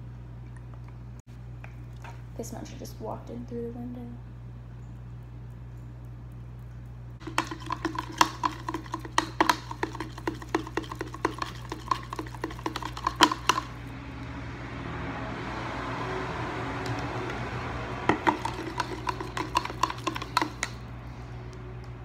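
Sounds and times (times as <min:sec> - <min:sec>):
spoon clinking in plastic tumbler: 0:07.2 - 0:13.8, 0:18.1 - 0:20.8.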